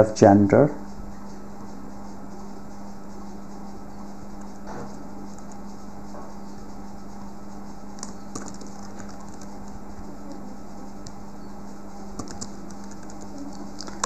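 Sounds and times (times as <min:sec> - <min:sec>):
low hum and hiss: 0:00.0 - 0:14.0
keyboard keystrokes: 0:12.2 - 0:14.0.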